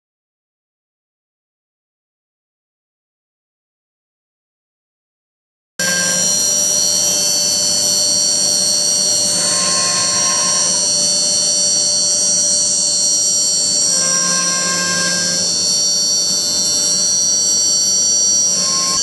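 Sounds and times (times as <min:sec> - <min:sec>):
spindle high whine: 0:05.8 - 0:19.0
stepper motor tones: 0:05.8 - 0:19.0.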